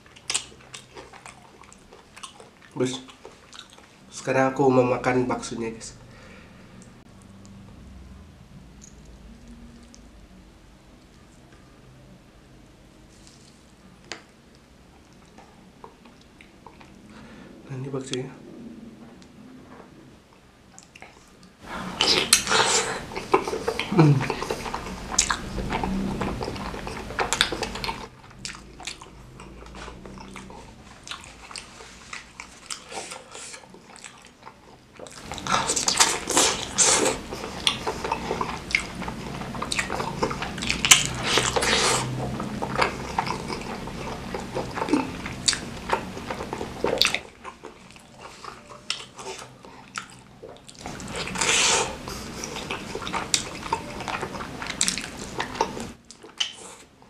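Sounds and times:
wet chewing and biting: 0.0s - 4.0s, 20.8s - 56.9s
mouth smacking: 20.8s - 56.9s.

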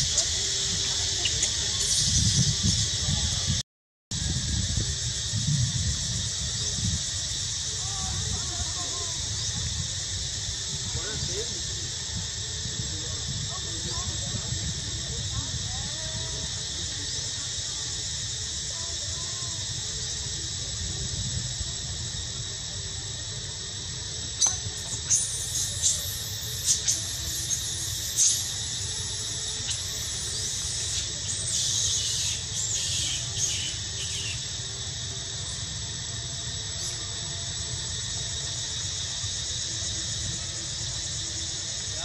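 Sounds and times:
steady high hiss: 0.0s - 42.0s
baby monkey squealing: 29.7s - 34.5s.

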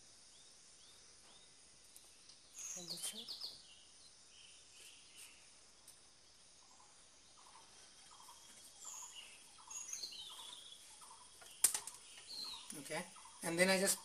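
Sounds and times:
birds calling: 0.0s - 14.0s
high bird chirps: 2.5s - 5.6s, 6.6s - 14.0s.

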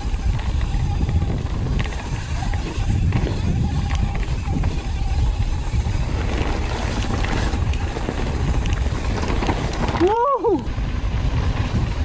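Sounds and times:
bike tyres rolling on dirt trail: 0.0s - 12.0s
wind on microphone: 0.0s - 12.0s
small clicks and rattles: 6.2s - 10.2s.

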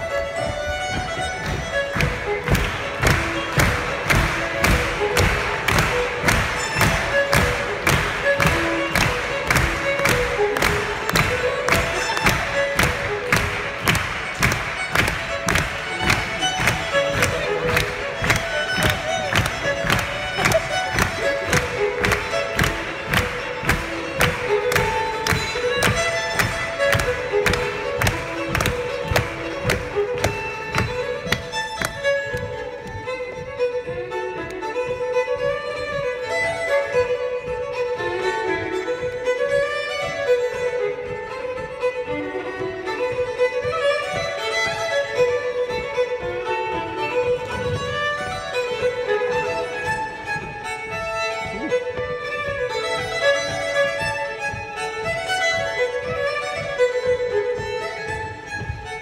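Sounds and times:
fiddle playing a fast reel: 0.0s - 59.0s
steady low tapping: 0.0s - 59.0s.

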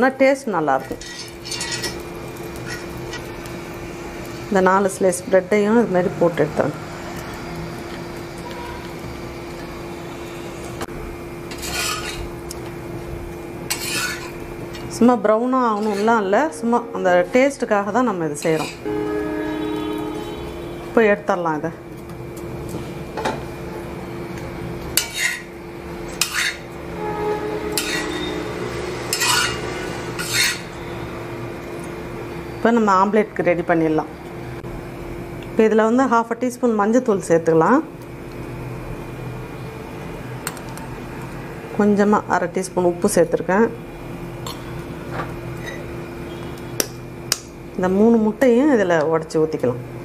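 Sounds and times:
steady low hum: 0.0s - 50.0s
spatula scraping on griddle: 0.8s - 3.4s, 11.5s - 12.3s, 13.7s - 14.8s, 15.7s - 16.2s, 18.3s - 20.4s, 25.0s - 25.5s, 26.1s - 30.8s
metal utensil clinking on griddle: 0.9s - 2.0s, 15.7s - 16.2s, 27.8s - 28.2s, 29.1s - 29.6s.

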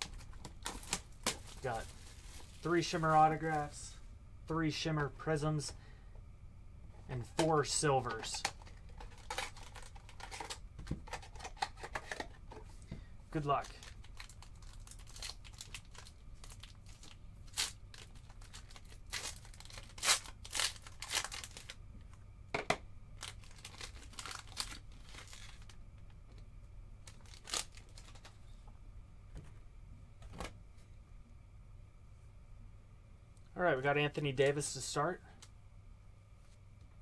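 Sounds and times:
foil packs ripping and crinkling: 0.0s - 3.8s, 8.2s - 11.6s, 13.6s - 21.8s, 23.2s - 25.8s, 27.0s - 28.3s.

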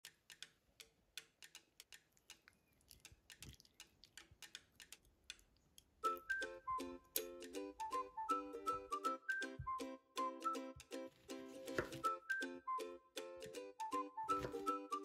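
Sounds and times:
plucked-string music: 6.0s - 15.0s.

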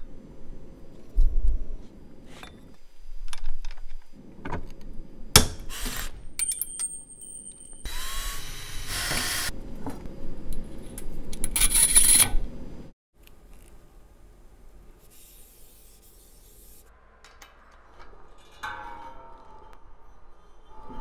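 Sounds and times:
power drill motor humming: 7.9s - 9.5s.

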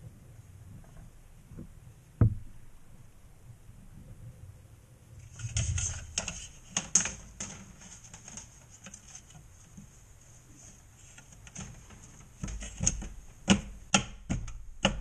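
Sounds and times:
plastic knocks and clicks: 1.6s - 2.6s, 11.2s - 15.0s.

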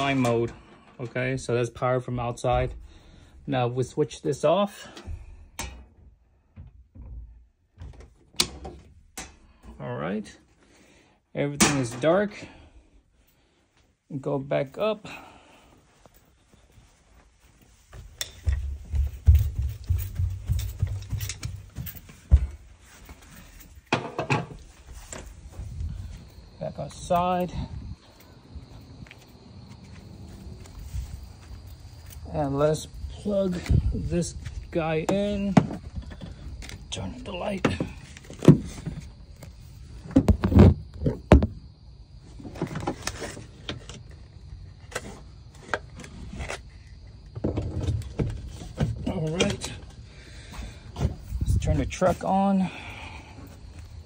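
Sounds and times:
footsteps climbing stairs: 16.0s - 39.1s.

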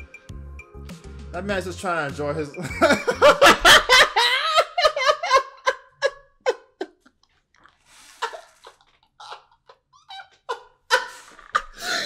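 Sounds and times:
man laughing: 2.6s - 7.3s, 8.1s - 12.0s.

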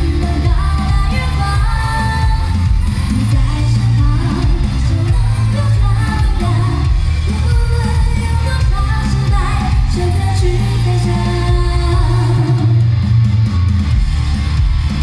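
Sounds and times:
woman singing into microphone: 0.0s - 13.0s
amplified band with heavy bass: 0.0s - 15.0s.

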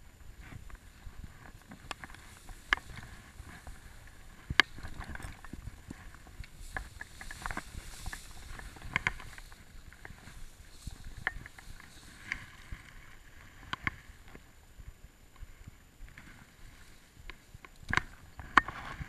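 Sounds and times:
grass rustling against camera: 0.0s - 19.0s
wind rumble on microphone: 0.0s - 19.0s
grass stalks knocking: 0.7s - 13.1s.

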